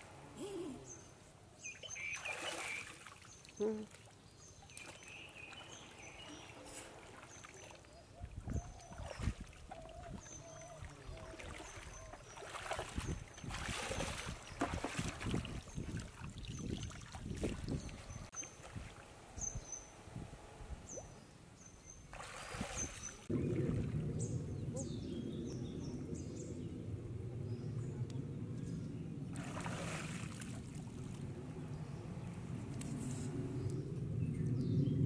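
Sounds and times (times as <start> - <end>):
water splashing and sloshing: 1.8 - 19.4, 22.0 - 24.7, 29.3 - 31.6
steady low rumble: 23.2 - 29.6, 30.5 - 35.0.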